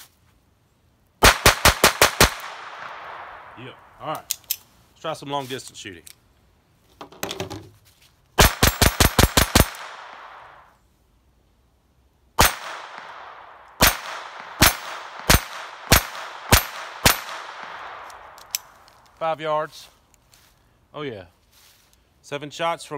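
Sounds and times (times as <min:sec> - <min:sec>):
pistol shots with echo: 0:01.2 - 0:03.9, 0:08.4 - 0:10.7, 0:12.4 - 0:18.7.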